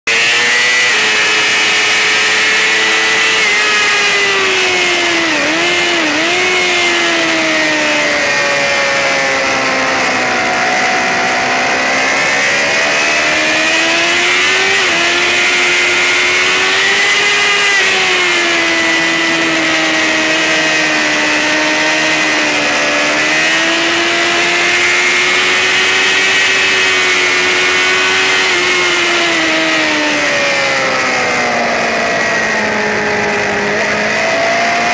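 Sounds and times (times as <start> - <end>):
motorcycle engine at high revs: 0.0 - 34.9
constant rushing noise: 0.1 - 34.9.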